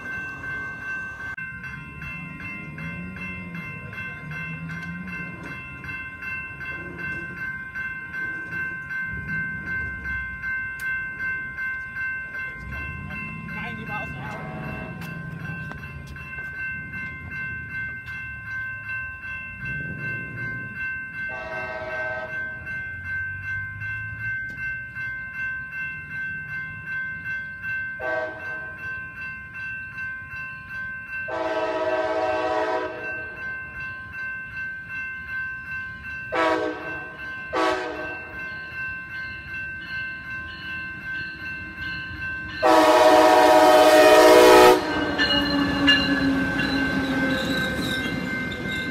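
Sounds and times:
crossing warning bell ringing: 0:00.0 - 0:48.9
train horn blasts: 0:21.3 - 0:22.5, 0:28.0 - 0:28.5, 0:31.3 - 0:33.1, 0:36.3 - 0:38.2, 0:42.6 - 0:47.4.

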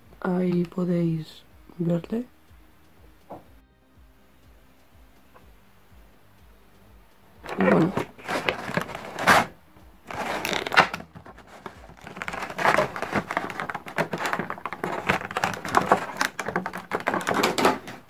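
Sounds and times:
plastic packaging crinkling: 0:07.4 - 0:09.5, 0:10.1 - 0:18.0.

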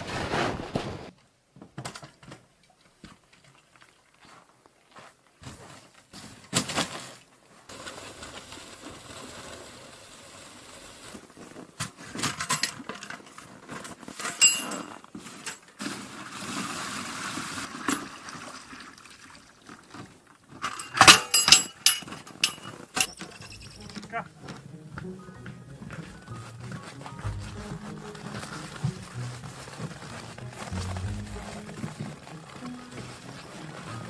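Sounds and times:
water pouring into plastic tub: 0:15.8 - 0:20.3.

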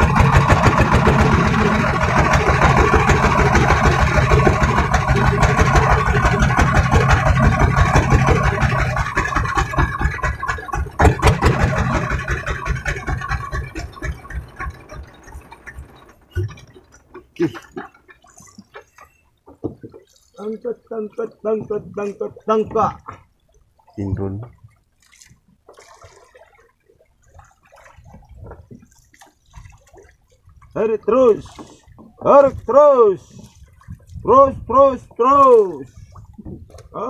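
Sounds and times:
diesel boat engine chugging: 0:00.0 - 0:19.3, 0:30.7 - 0:37.0
sharp knocks: 0:09.6 - 0:12.3.

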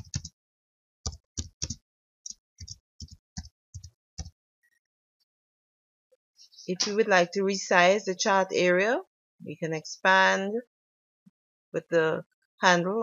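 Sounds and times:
typing on computer keyboard: 0:00.0 - 0:00.3, 0:01.1 - 0:01.8.

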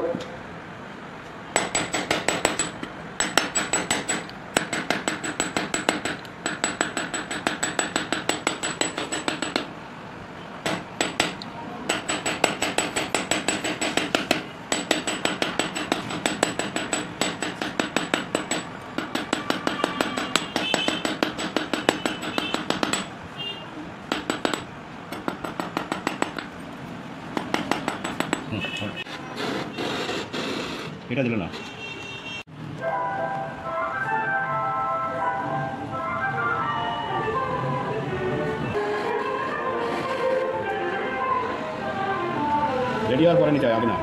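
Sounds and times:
hammer tapping metal strip: 0:01.6 - 0:09.7, 0:10.6 - 0:23.1, 0:24.1 - 0:26.5, 0:27.3 - 0:28.5.

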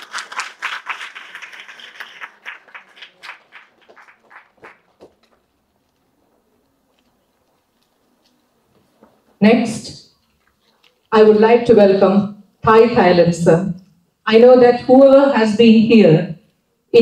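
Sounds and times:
small audience applauding: 0:00.0 - 0:08.4.

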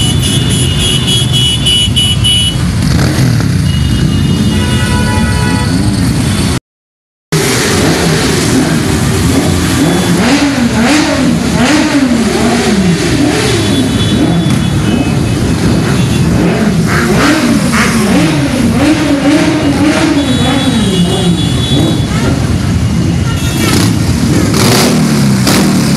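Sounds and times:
motorcycle engines revving: 0:00.0 - 0:06.6, 0:07.4 - 0:25.9.

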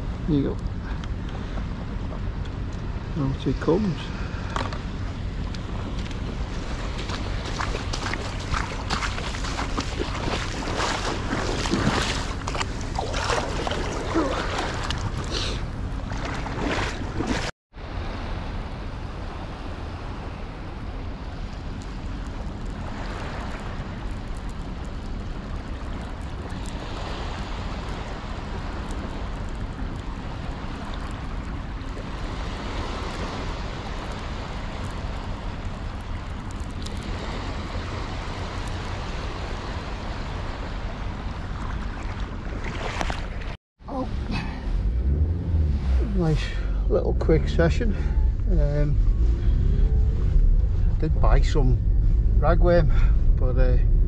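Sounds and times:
small waves on shore: 0:00.0 - 0:53.7
wind on microphone: 0:03.8 - 0:54.0
hands splashing in water: 0:07.1 - 0:17.5.

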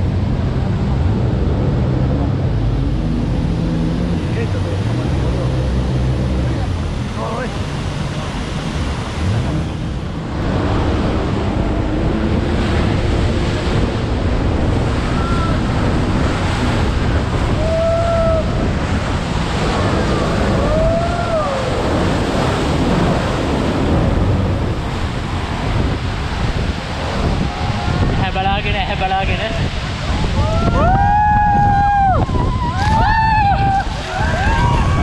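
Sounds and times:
wind buffeting microphone: 0:00.0 - 0:35.0
waterfall rushing: 0:00.1 - 0:35.0.

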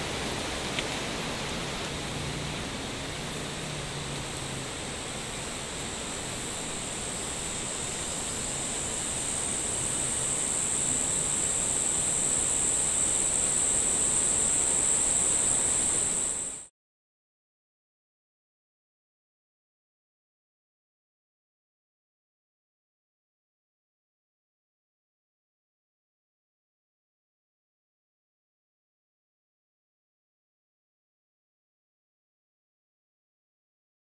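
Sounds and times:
steady hiss of noise: 0:00.0 - 0:16.7
thin high whine: 0:00.0 - 0:16.7.

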